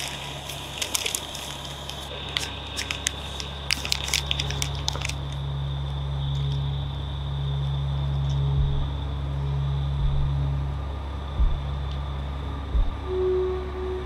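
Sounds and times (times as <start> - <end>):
paper crinkling: 0.0 - 5.4
steady low hum: 0.0 - 14.0.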